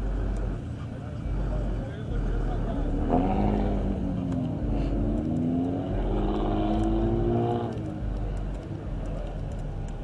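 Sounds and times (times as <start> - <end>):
steady low rumble: 0.0 - 10.0
car engine revving passing by: 2.7 - 8.2.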